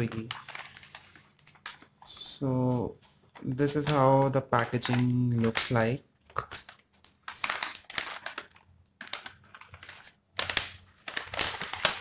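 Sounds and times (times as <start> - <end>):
paper bag crinkling: 0.0 - 12.0.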